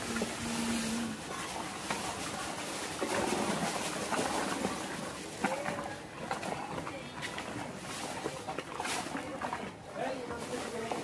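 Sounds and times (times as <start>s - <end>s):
milk sloshing in a pot: 0.0s - 11.0s.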